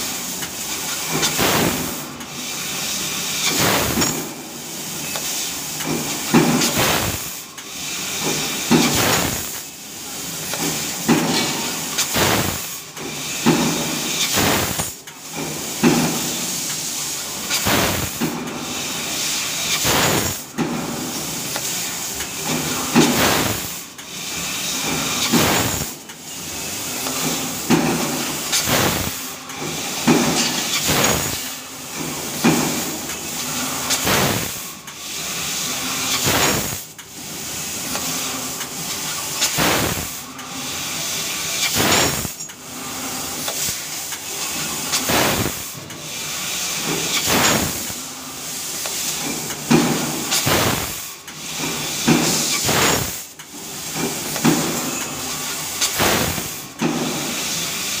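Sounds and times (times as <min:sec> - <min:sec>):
cutting gas jet hissing: 0:00.8 - 0:15.0, 0:16.0 - 0:20.6, 0:21.2 - 0:31.8, 0:32.4 - 0:37.0, 0:39.1 - 0:58.0
machine clicks: 0:28.4 - 0:31.4, 0:39.4 - 0:40.2, 0:41.6 - 0:42.6, 0:44.9 - 0:46.0, 0:46.9 - 0:48.0, 0:48.8 - 0:57.0.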